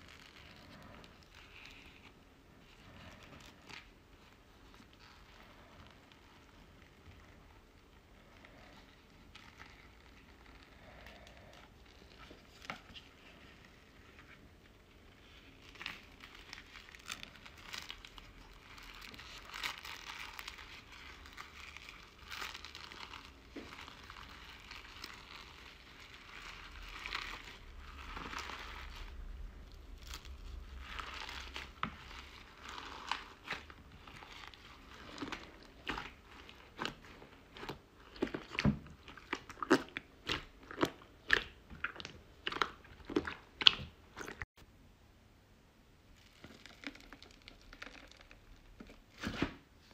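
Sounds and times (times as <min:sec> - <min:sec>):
crunchy slime being squeezed: 0:15.1 - 0:44.5, 0:46.1 - 0:49.5.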